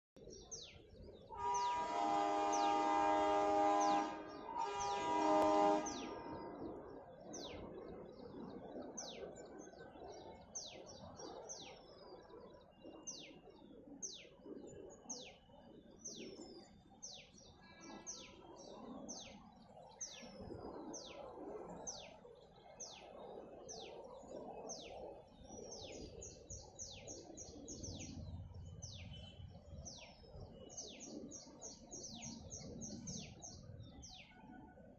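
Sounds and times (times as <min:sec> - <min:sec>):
bird chirping: 0:00.2 - 0:08.4, 0:21.0 - 0:34.8
locomotive horn blasts: 0:01.3 - 0:06.4.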